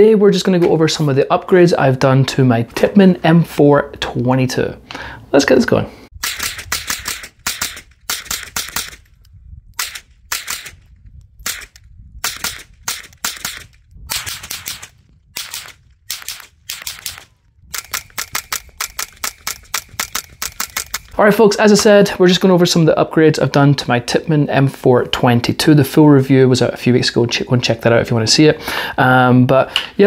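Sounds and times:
rifle firing: 0:06.2 - 0:09.1, 0:09.8 - 0:21.2.

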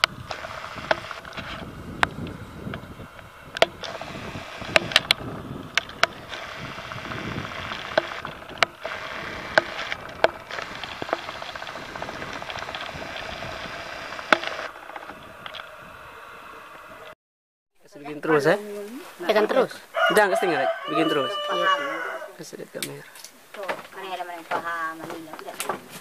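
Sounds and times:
sharp clicks and snaps: 0:00.0 - 0:15.8
footsteps on trail: 0:00.0 - 0:15.9.

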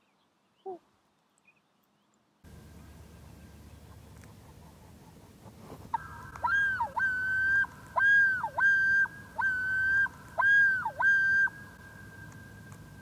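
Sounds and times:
loon yodelling: 0:06.0 - 0:11.6.

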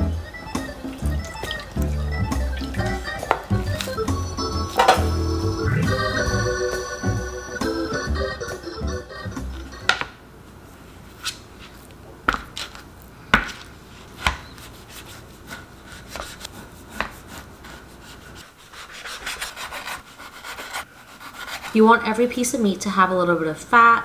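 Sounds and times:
cutting board set down: 0:04.8 - 0:05.1.

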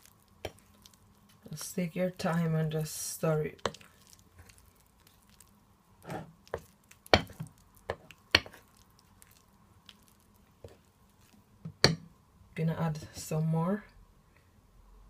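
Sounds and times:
fork stirring batter: 0:00.0 - 0:11.4.

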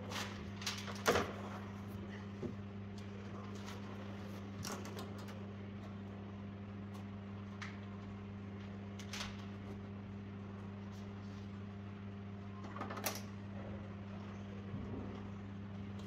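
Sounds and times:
low hum: 0:13.3 - 0:16.0.

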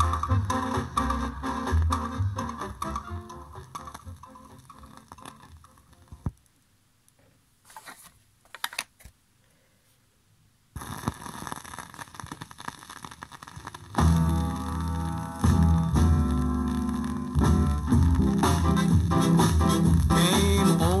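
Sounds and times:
ska music from record: 0:00.0 - 0:06.3, 0:10.8 - 0:21.0
vinyl crackle and hiss: 0:00.0 - 0:21.0.

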